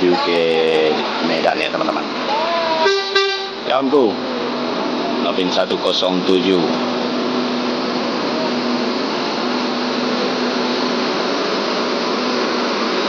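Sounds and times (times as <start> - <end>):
coach passing with steady drone: 0.0 - 13.0.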